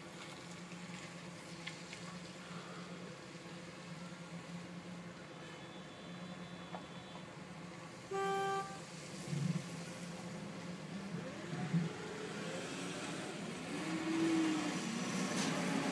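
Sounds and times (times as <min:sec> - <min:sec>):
vehicle engines rising and falling: 0:06.2 - 0:15.9
low engine hum: 0:07.5 - 0:15.9
car horn beeping: 0:08.1 - 0:08.9.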